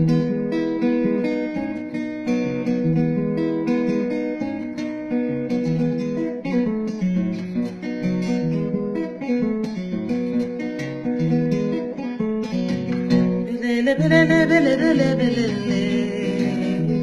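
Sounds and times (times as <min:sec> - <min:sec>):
acoustic guitar picked chords: 0:00.0 - 0:17.0
woman singing: 0:13.4 - 0:17.0.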